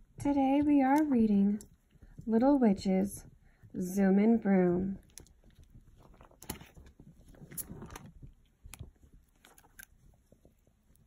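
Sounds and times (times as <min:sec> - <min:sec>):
board book pages flipping: 0:05.0 - 0:11.0.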